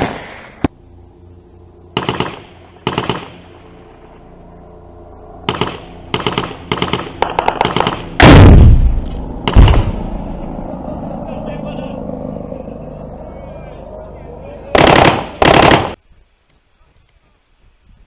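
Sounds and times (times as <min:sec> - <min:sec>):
rocket launch blast: 0:00.0 - 0:00.7, 0:08.2 - 0:10.4
automatic gunfire bursts: 0:02.0 - 0:03.4, 0:05.5 - 0:08.6, 0:14.7 - 0:16.0.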